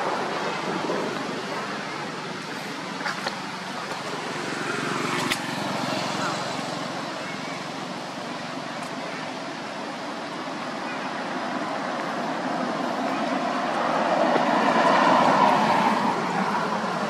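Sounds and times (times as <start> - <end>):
motor vehicle passing by: 4.1 - 7.6, 12.6 - 17.0.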